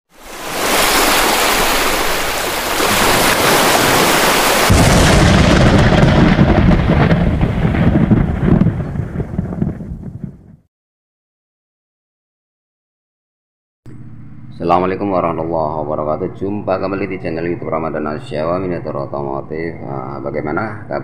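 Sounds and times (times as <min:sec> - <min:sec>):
deep explosion boom: 0:04.7 - 0:10.7.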